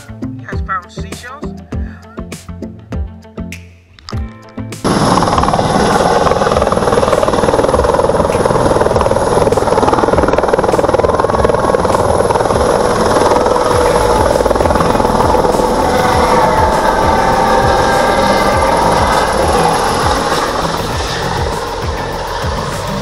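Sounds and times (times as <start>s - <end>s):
helicopter engine whine: 4.8s - 23.0s
helicopter rotor chop: 4.8s - 23.0s.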